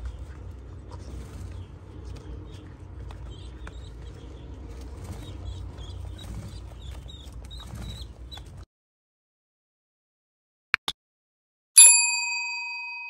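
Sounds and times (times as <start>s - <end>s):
steady low rumble: 0.0s - 8.6s
pigeon squab squeaking: 0.9s - 8.6s.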